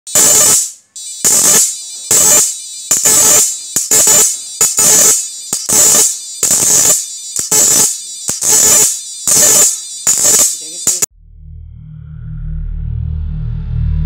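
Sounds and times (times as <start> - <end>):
electric arcing buzz: 0.1 - 11.1
short electronic blips: 0.1 - 11.1.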